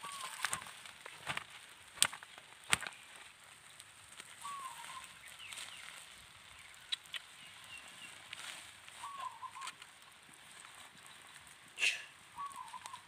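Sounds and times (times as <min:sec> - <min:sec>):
sharp pops from fire: 0:00.0 - 0:05.8, 0:06.7 - 0:07.4
fire crackling: 0:00.0 - 0:13.0.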